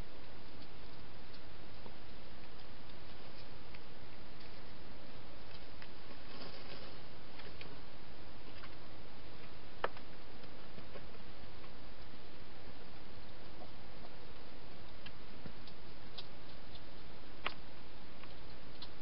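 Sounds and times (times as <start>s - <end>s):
steady hiss: 0.0s - 19.0s
rustling in leaves: 5.4s - 8.9s.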